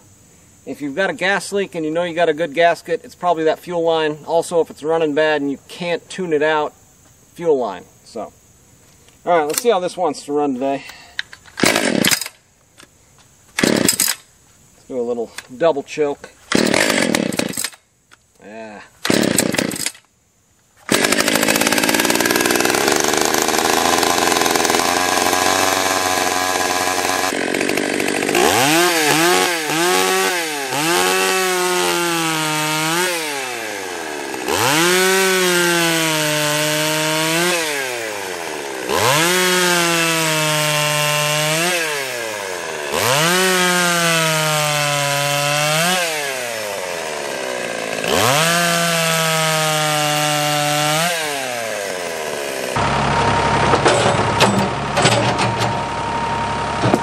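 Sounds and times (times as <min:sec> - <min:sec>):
chainsaw idling and revving: 0:11.6 - 0:12.3, 0:13.6 - 0:14.2, 0:16.5 - 0:17.8, 0:19.1 - 0:20.0, 0:20.9 - 0:54.8.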